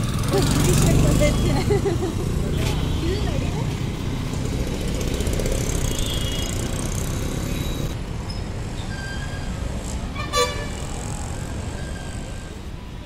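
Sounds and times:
rumble of passing vehicles: 0.0s - 13.0s
car horn beep: 5.9s - 6.6s, 10.2s - 10.8s.

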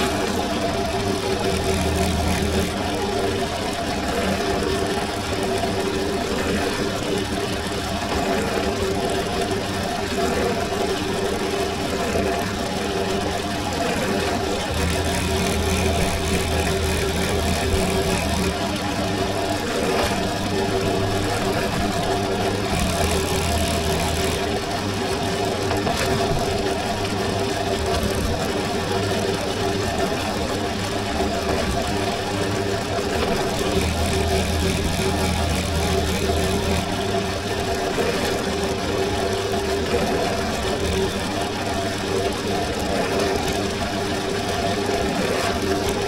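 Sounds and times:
drill press motor humming: 0.0s - 6.9s, 11.1s - 44.0s
drill bit boring leather: 1.2s - 2.9s, 14.6s - 18.6s, 20.8s - 24.7s, 33.1s - 37.2s.

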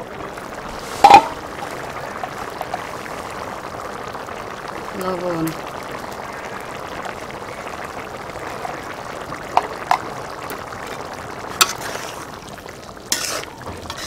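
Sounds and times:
curry bubbling in a pot: 0.0s - 14.0s
ladle stirring curry: 11.5s - 12.4s, 13.1s - 14.0s.

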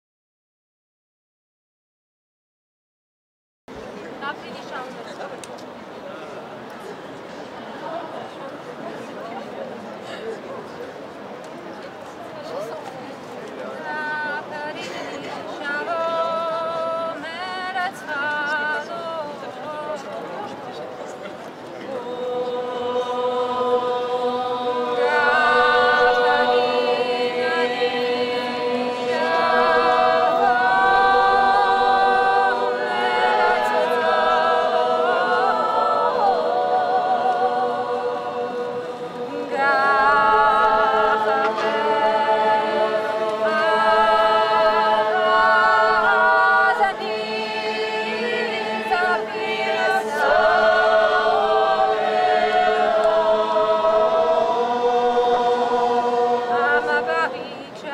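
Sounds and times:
group singing unaccompanied: 13.8s - 20.7s, 21.8s - 57.9s.

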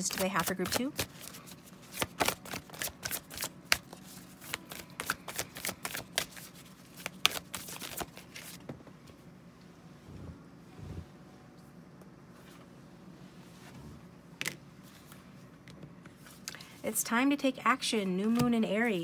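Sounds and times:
cards being shuffled: 0.0s - 8.6s.

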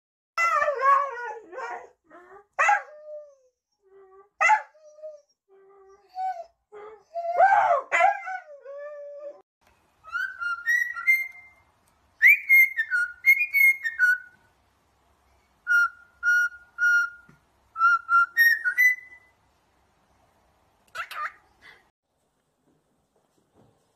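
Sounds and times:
bird whistling a tune: 10.0s - 14.4s, 15.6s - 19.3s.

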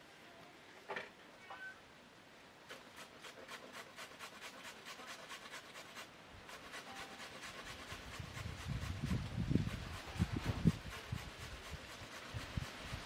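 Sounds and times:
carrot grated on metal grater: 2.7s - 13.0s.

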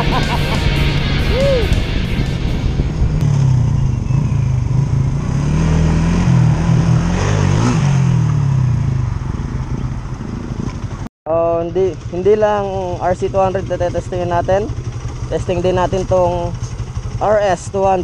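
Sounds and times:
passing vehicle engine: 0.0s - 11.0s
wind and road rush: 0.0s - 11.1s
scooter engine running: 8.3s - 18.0s.

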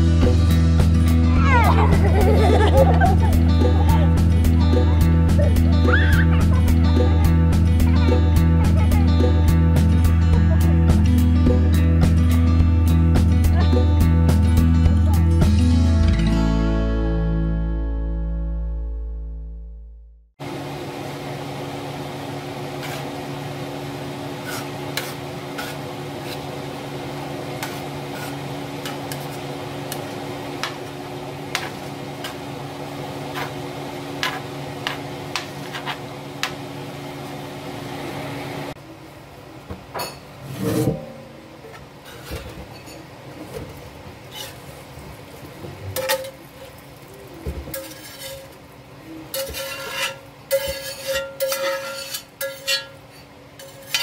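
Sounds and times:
steady hum: 20.4s - 42.6s
metal spatula scraping: 22.8s - 23.2s, 24.4s - 26.6s, 27.6s - 29.5s, 31.5s - 32.4s, 33.3s - 33.6s, 34.2s - 36.1s, 40.4s - 41.4s, 42.0s - 43.0s, 44.3s - 44.8s, 46.0s - 46.4s, 47.7s - 48.6s, 49.3s - 54.0s.

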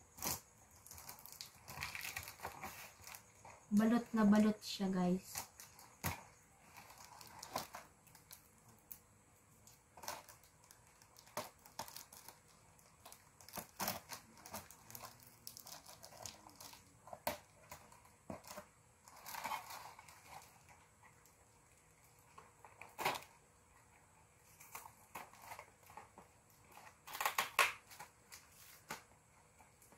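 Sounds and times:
tape and cardboard rustling: 0.0s - 29.9s
scissors cutting packing tape: 13.0s - 17.8s.

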